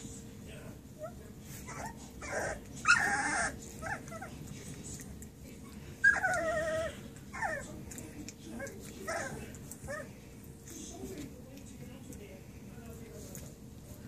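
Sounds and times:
puppies whining and squealing: 1.0 - 4.5, 5.7 - 10.2
puppies yelping: 1.7 - 4.4, 6.0 - 7.7, 8.6 - 10.1.

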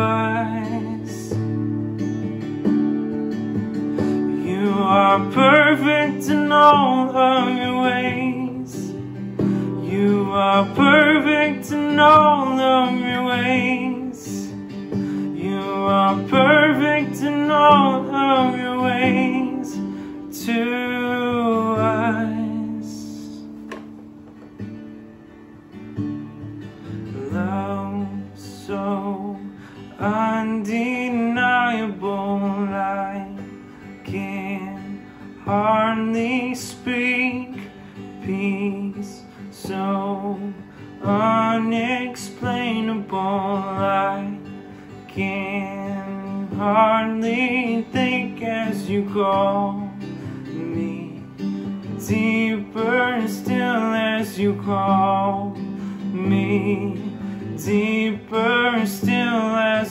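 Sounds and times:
person singing: 0.0 - 1.6, 3.9 - 23.8, 26.9 - 59.9
acoustic guitar strumming: 0.0 - 59.9.

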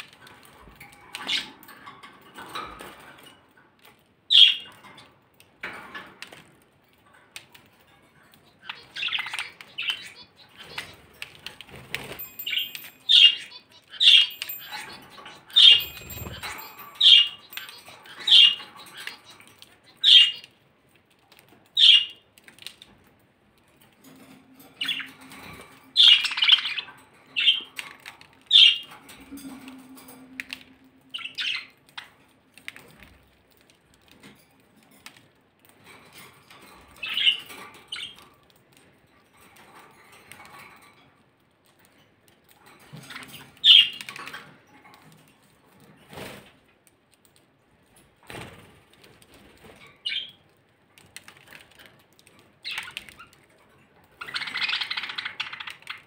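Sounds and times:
budgerigars chirping and squawking: 4.3 - 4.8, 8.5 - 11.1, 12.0 - 20.5, 21.8 - 22.2, 24.6 - 32.2, 37.0 - 38.2, 43.0 - 44.5, 54.2 - 56.0.

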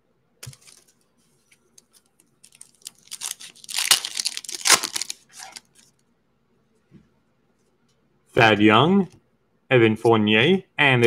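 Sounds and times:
foil wrapper crinkling: 0.4 - 0.9, 2.4 - 5.9.

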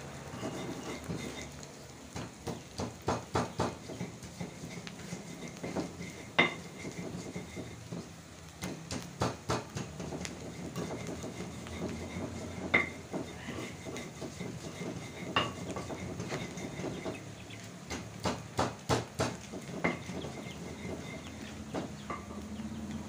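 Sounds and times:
metal spatula scraping wok: 0.0 - 1.7, 3.7 - 8.2, 9.8 - 17.3, 19.5 - 22.4
onions frying: 0.0 - 23.0.

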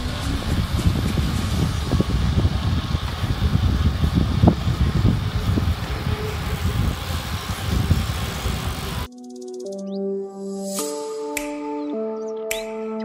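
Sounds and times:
wind buffeting microphone: 0.0 - 9.1.

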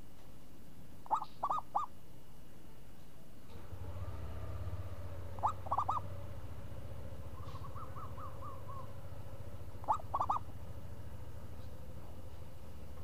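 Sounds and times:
low steady hum: 0.0 - 13.0
dove cooing: 1.1 - 1.9, 5.3 - 6.2, 7.2 - 10.6.

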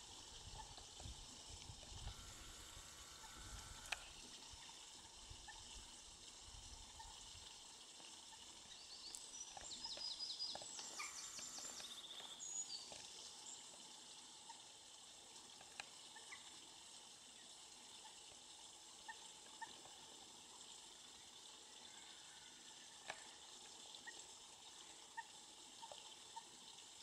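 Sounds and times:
faint outdoor hiss: 0.0 - 27.0
small bird song with trill: 8.8 - 13.0.

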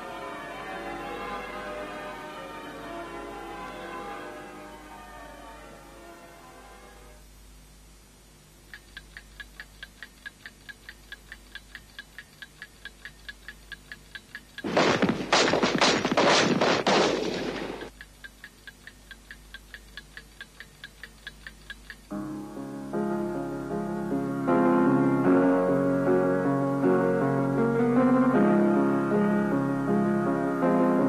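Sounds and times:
piano music: 0.0 - 7.2, 22.1 - 31.0
clock ticking fast: 8.6 - 22.4
rapid sharp bangs: 14.6 - 17.9.

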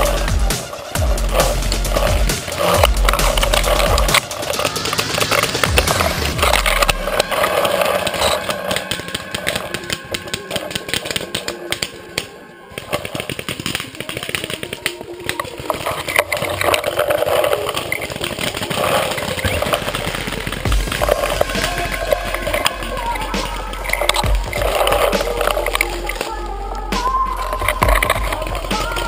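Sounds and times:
twigs and leaves crackling: 0.0 - 29.0.

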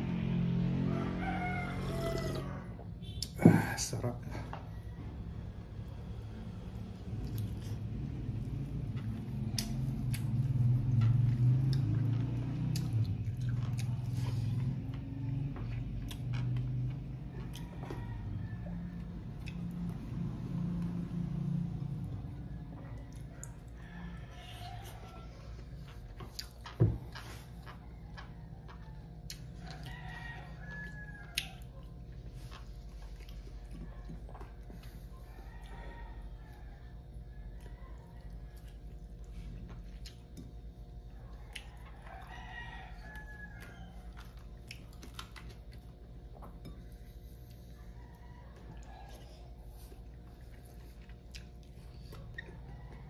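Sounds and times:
rooster crowing: 0.0 - 3.2, 4.0 - 6.8, 14.1 - 26.1, 27.0 - 32.6, 34.7 - 39.6, 41.1 - 44.6, 47.6 - 51.0, 51.7 - 53.0
man chewing food: 0.0 - 53.0.

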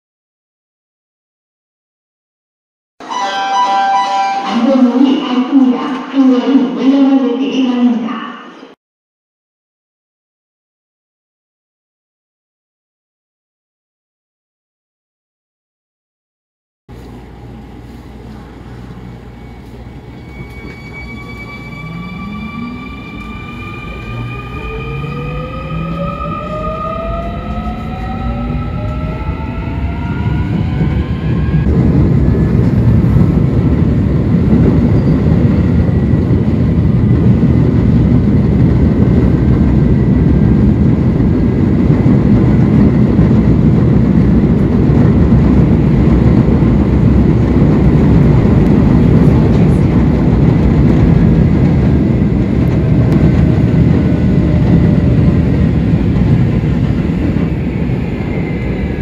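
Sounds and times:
train motor inverter whine: 16.9 - 59.0
train wheels rumbling on rail: 16.9 - 59.0.

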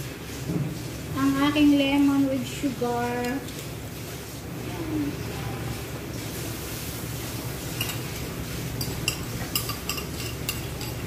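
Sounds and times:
mixture pouring into pan: 3.5 - 11.0
metal spoon clinking ceramic bowl: 7.8 - 8.1, 8.8 - 11.0.

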